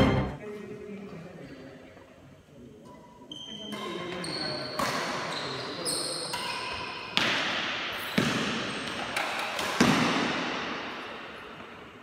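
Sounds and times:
racket hitting shuttlecock: 7.2s - 11.0s.

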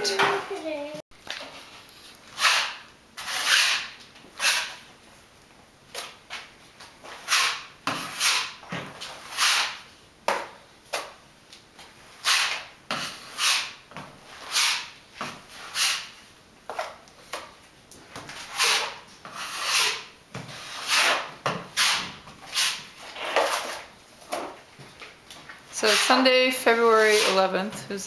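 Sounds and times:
taping knife scraping drywall: 2.3s - 4.8s, 5.9s - 9.9s, 12.0s - 17.5s, 18.3s - 24.5s, 25.8s - 27.5s
blade scraping metal pan: 18.4s - 23.8s, 25.8s - 27.5s.

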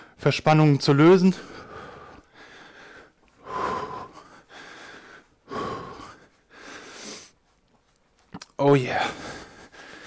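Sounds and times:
man breathing hard: 1.3s - 7.6s, 8.9s - 10.0s.

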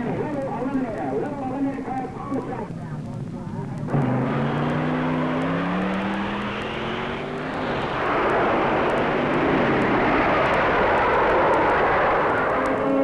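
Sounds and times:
go-kart engine running hard: 3.8s - 13.0s.

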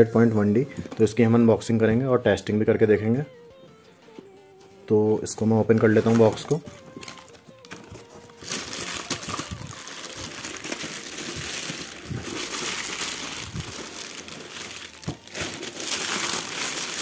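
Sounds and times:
plastic bag crinkling: 5.6s - 17.0s.

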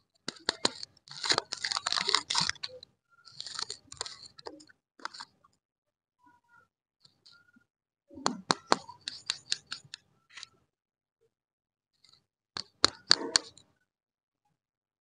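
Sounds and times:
candy wrappers crinkling: 0.3s - 4.3s.

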